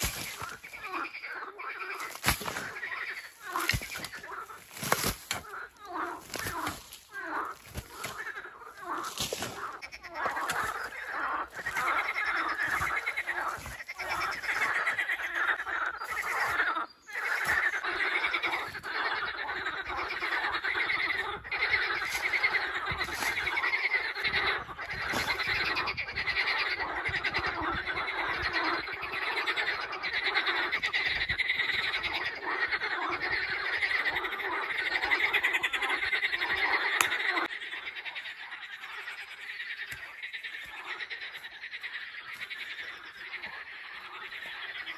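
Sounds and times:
shovel digging into soil: 0:00.0 - 0:00.7, 0:01.9 - 0:05.6, 0:06.2 - 0:09.7
frogs calling: 0:00.0 - 0:44.9.

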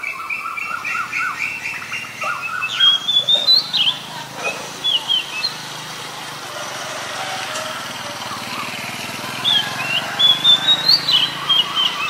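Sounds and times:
bird singing whistled notes: 0:00.0 - 0:04.1, 0:04.8 - 0:05.7, 0:09.4 - 0:12.0.

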